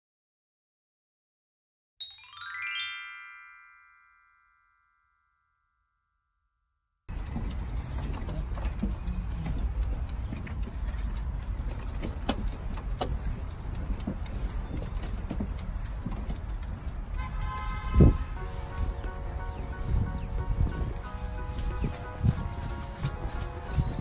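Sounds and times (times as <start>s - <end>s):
background music: 18.2s - 24.0s.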